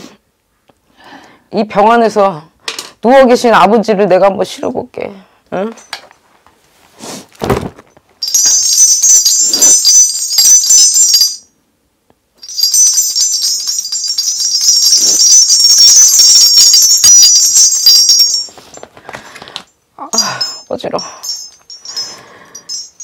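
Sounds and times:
hand bells jingling: 8.2s - 11.5s, 12.4s - 18.9s, 20.1s - 23.0s.

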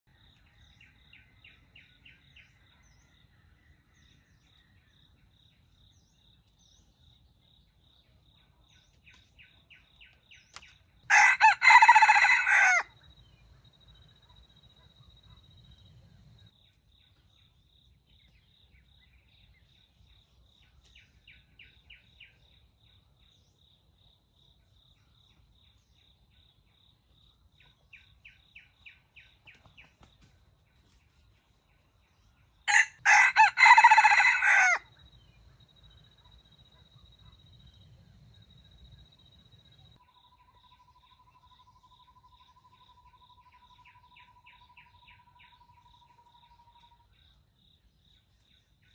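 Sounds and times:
rooster crowing: 11.1s - 13.0s, 32.7s - 34.9s.

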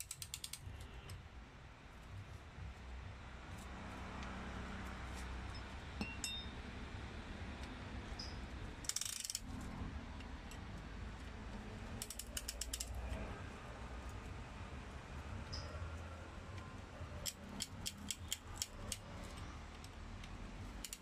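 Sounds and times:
ratchet pawl clicking: 0.0s - 0.9s, 8.1s - 9.6s, 10.2s - 13.3s, 17.2s - 21.0s
steady low hum: 0.6s - 21.0s.

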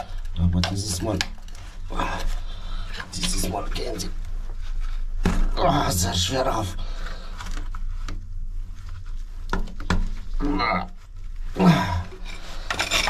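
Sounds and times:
person grunting: 10.4s - 10.9s, 11.6s - 12.2s.

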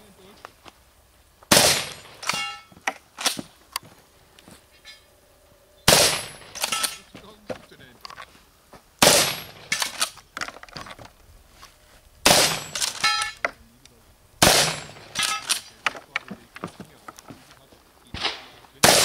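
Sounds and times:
shotgun shots: 1.5s - 3.5s, 5.9s - 7.1s, 9.0s - 10.2s, 12.2s - 13.4s, 14.4s - 15.8s, 18.1s - 19.0s
steel target ringing: 1.6s - 2.8s, 5.9s - 7.1s, 12.3s - 13.4s, 14.4s - 15.6s.

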